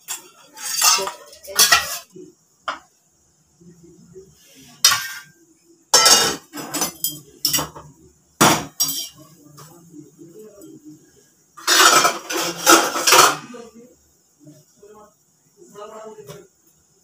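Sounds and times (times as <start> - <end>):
metal kitchenware clattering: 0.0 - 2.1, 4.8 - 5.3, 5.9 - 9.2, 11.6 - 13.5.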